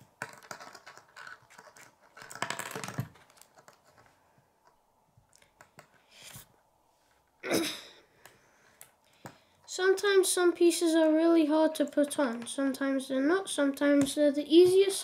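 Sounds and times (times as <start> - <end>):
plastic pieces clicking: 0.0 - 4.0.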